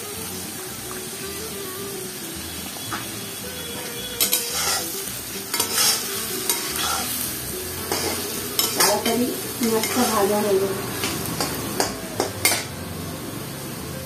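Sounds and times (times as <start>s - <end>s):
onions sizzling in hot oil: 0.0s - 14.0s
metal spatula scraping: 3.7s - 12.7s.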